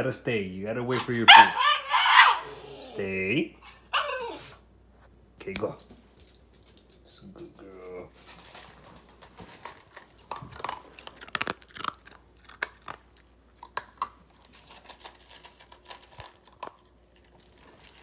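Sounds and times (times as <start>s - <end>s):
puppy crunching kibble from metal bowl: 5.6s - 18.0s.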